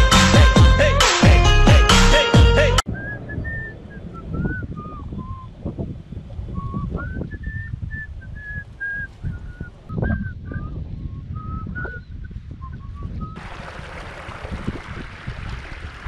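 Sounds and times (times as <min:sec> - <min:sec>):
person whistling a tune: 0:02.3 - 0:05.5, 0:06.6 - 0:13.4
wind rumble on microphone: 0:02.9 - 0:16.0.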